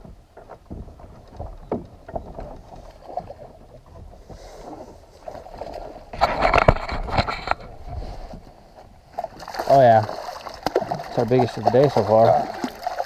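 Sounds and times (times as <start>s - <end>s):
fish splashing at surface: 9.2s - 13.0s.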